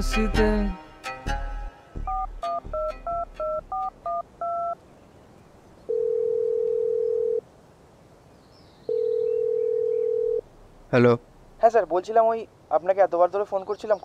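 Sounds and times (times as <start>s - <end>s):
telephone keypad beeps: 2.1s - 4.8s
telephone ringback tone: 2.1s - 4.8s, 5.9s - 7.4s, 8.9s - 10.4s.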